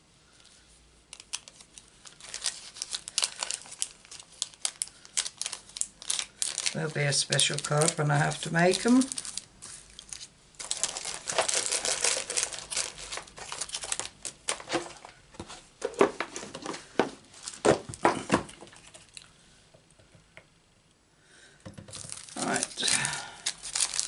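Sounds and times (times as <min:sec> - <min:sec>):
plastic packaging crinkling: 0:01.1 - 0:15.2, 0:15.8 - 0:19.2, 0:21.9 - 0:24.0.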